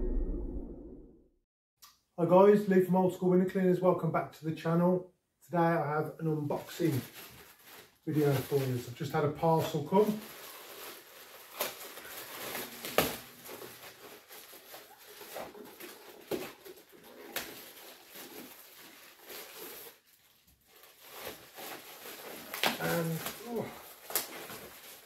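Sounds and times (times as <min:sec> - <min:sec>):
plastic packaging crinkling: 0:06.4 - 0:25.0.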